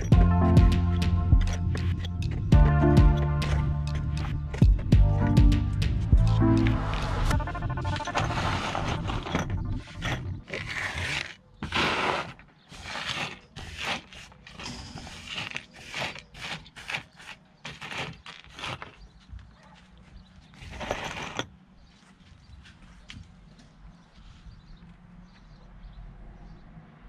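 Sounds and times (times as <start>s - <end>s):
metal parts clinking and scraping: 1.4s - 2.5s, 7.8s - 11.4s.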